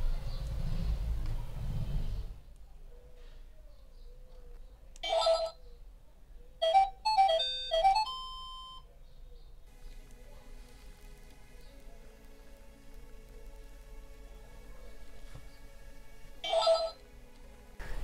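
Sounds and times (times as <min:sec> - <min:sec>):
faint electronic music: 0:00.0 - 0:18.0
toy laptop electronic beeps: 0:05.0 - 0:05.6, 0:06.6 - 0:08.9, 0:16.4 - 0:17.0.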